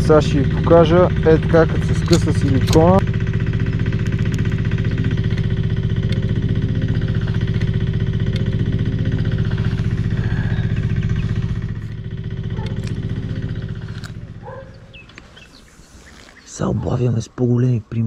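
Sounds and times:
engine running with even pulsing: 0.0s - 17.8s.

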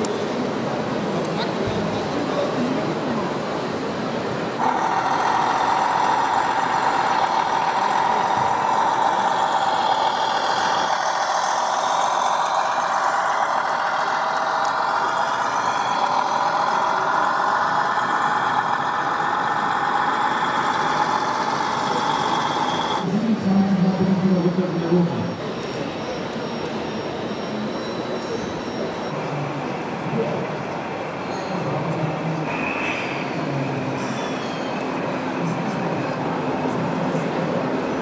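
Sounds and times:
model truck motor whine: 3.7s - 23.1s.

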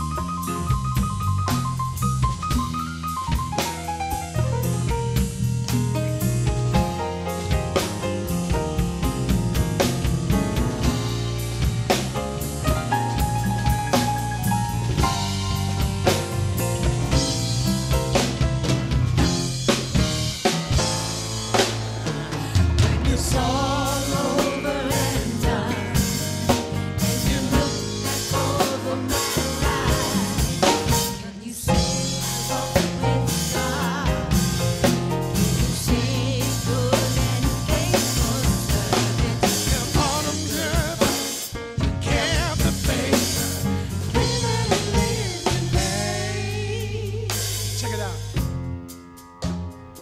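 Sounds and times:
gospel band playing: 0.0s - 50.0s
voices singing: 21.9s - 47.7s.

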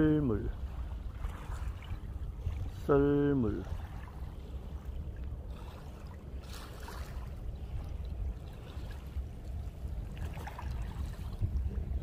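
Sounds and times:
wind rumble on microphone: 0.0s - 12.0s
water lapping on pebble shore: 3.6s - 7.8s.

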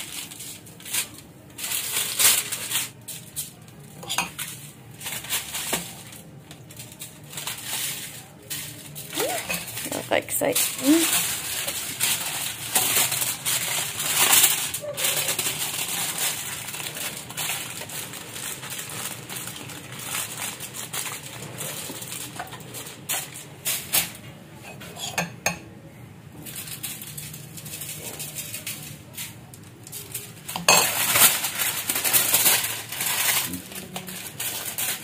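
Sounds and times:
aluminium foil crinkling: 0.0s - 25.6s, 26.3s - 35.0s
spoon and tray clinking: 9.4s - 9.8s, 24.6s - 25.6s.

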